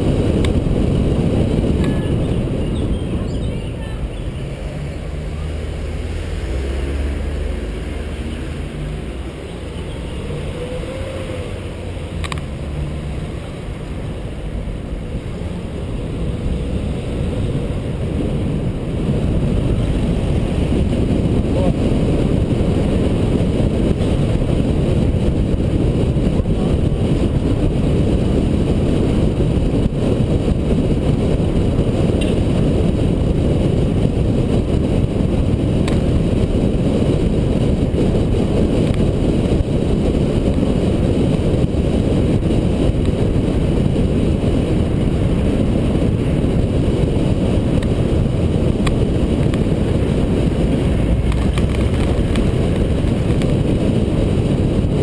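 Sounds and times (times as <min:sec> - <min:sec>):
car engine hum: 0:00.0 - 0:55.0
tyre and road noise: 0:00.0 - 0:55.0
wind rumble: 0:00.0 - 0:55.0.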